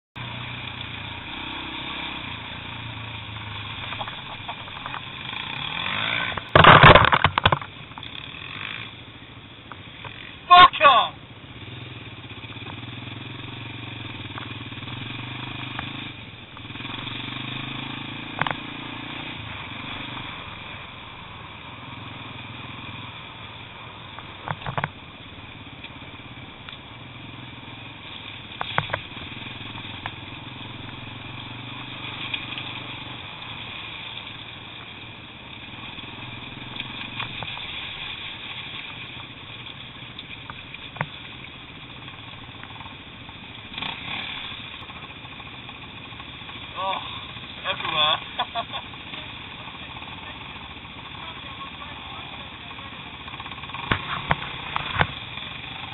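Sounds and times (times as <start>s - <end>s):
motorcycle engine revving: 0.2s - 55.9s
sharp knocks: 6.3s - 7.7s.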